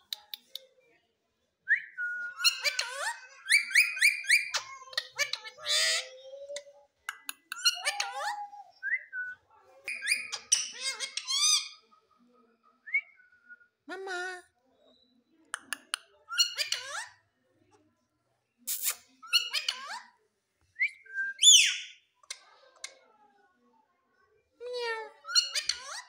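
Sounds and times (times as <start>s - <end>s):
parakeet whistling and chattering: 1.8s - 6.8s, 7.5s - 11.8s, 16.3s - 17.2s, 18.7s - 20.0s, 20.9s - 22.0s, 25.2s - 26.0s.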